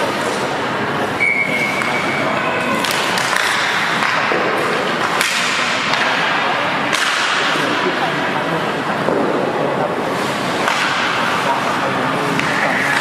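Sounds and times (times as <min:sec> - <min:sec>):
referee's whistle: 0:01.2 - 0:02.7
puck cracking against boards: 0:02.7 - 0:07.7, 0:10.6 - 0:11.3.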